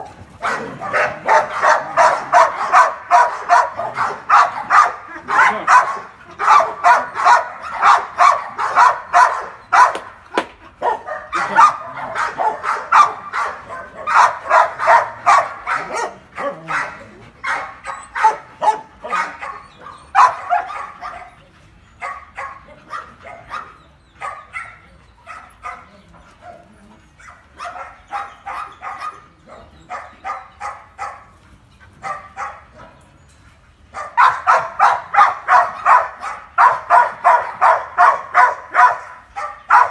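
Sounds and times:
dog barking: 0:00.4 - 0:10.0, 0:10.8 - 0:21.3, 0:27.6 - 0:31.2, 0:32.0 - 0:32.6, 0:34.0 - 0:39.9.

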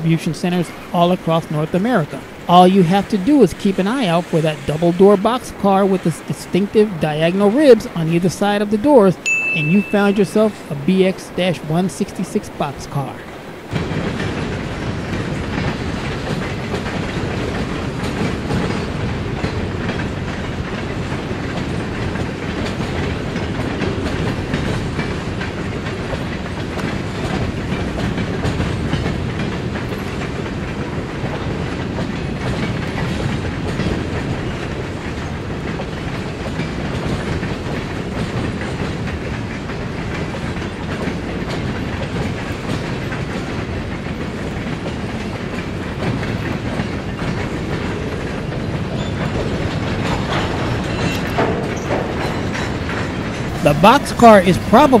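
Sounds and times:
freight train rolling past: 0:00.0 - 0:55.0
wheels clicking over rail joints: 0:13.4 - 0:53.6.

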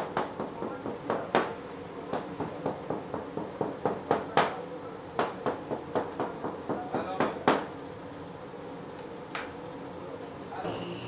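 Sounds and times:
machine hum: 0:10.5 - 0:11.0.

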